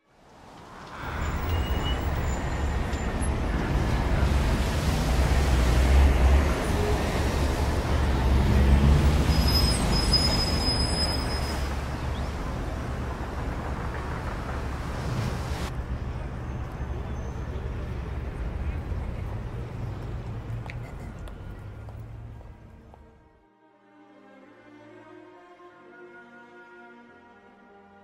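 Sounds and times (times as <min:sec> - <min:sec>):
road traffic rumble: 0:00.1 - 0:23.4
faint high squeal: 0:00.9 - 0:03.2, 0:09.3 - 0:11.7.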